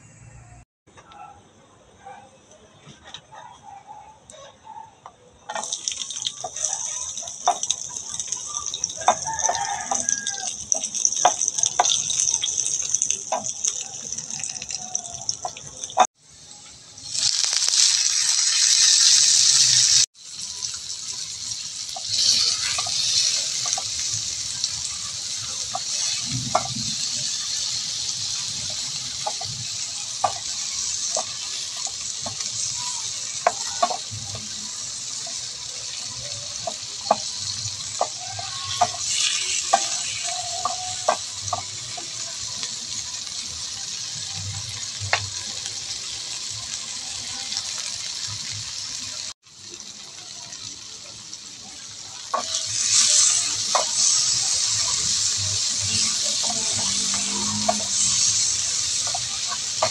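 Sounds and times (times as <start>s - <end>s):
utensil clicking against pan: 5.5s - 16.0s, 52.3s - 59.9s
onions sizzling in a frying pan: 5.5s - 59.9s.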